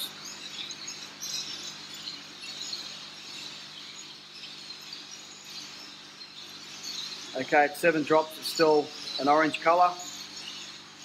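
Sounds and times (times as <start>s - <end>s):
faint high chirping: 0.0s - 11.0s
aquarium tanks humming: 7.3s - 11.0s.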